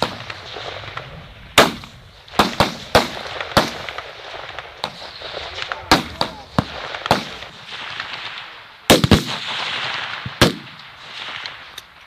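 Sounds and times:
rifle shots echoing: 0:00.0 - 0:12.0.

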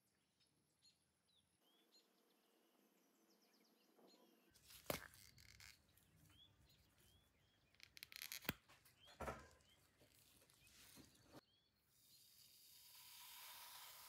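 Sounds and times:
scraping of small parts: 0:04.6 - 0:06.2.

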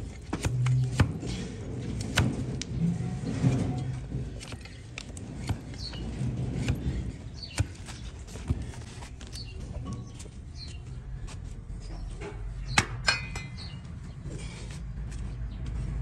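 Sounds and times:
blade cracking and scraping hoof: 0:00.0 - 0:10.1.

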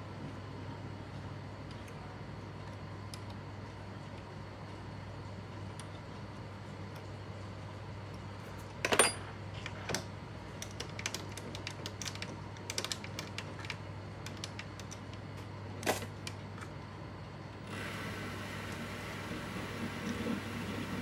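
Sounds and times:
lathe chuck whirring: 0:17.6 - 0:21.0.

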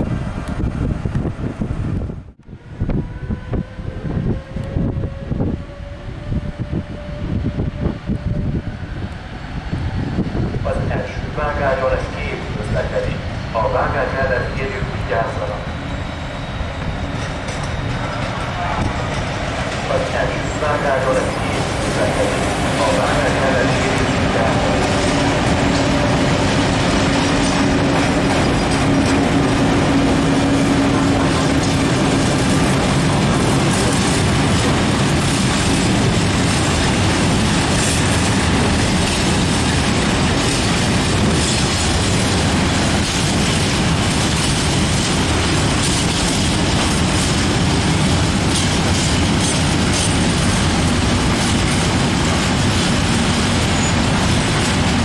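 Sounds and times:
train wheels on rail: 0:00.0 - 0:55.0
locomotive low hum: 0:14.4 - 0:55.0.

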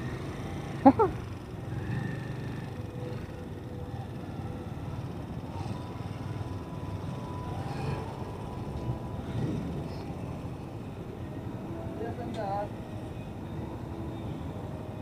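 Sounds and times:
motorcycle engine rumbling: 0:00.0 - 0:12.0.

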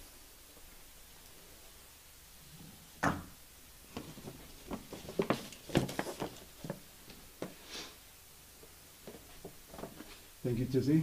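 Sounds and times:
handling knocks and clicks: 0:03.9 - 0:07.6, 0:09.0 - 0:10.2.

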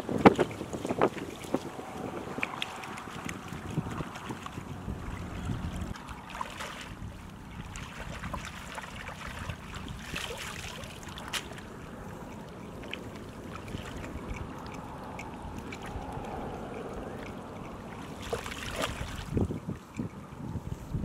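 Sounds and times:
small splashes: 0:00.0 - 0:20.1
low wind rumble: 0:00.0 - 0:21.0
water sloshing and trickling: 0:00.0 - 0:21.0.

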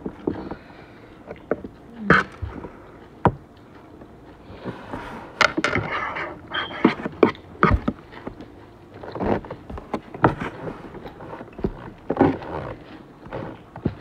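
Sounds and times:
chewing and mouth sounds: 0:00.1 - 0:04.6
fork scraping ceramic plate: 0:05.6 - 0:07.4.

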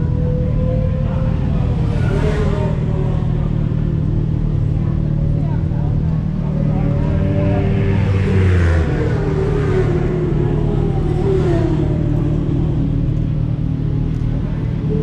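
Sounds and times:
motorcycle engines idling: 0:00.0 - 0:15.0.

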